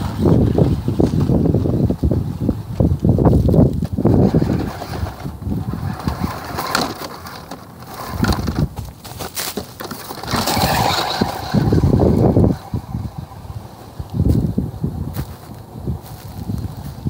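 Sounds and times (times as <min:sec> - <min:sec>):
toy truck driving over dry grass: 0:00.0 - 0:17.0
wind buffeting microphone: 0:00.0 - 0:17.0
motor whine: 0:09.8 - 0:16.9.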